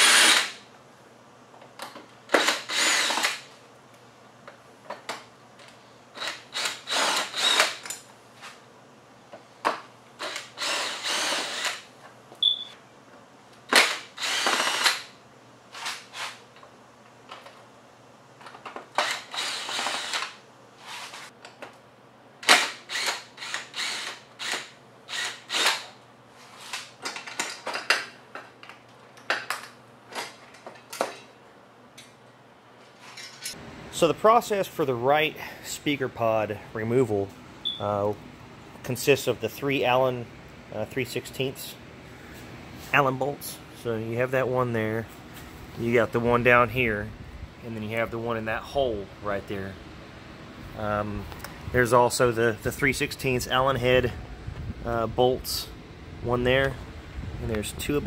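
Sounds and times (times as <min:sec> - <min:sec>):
cordless drill running: 0:00.0 - 0:00.6, 0:02.3 - 0:03.4, 0:06.2 - 0:07.8, 0:10.2 - 0:11.9, 0:13.8 - 0:15.1, 0:19.0 - 0:20.4, 0:22.5 - 0:25.8.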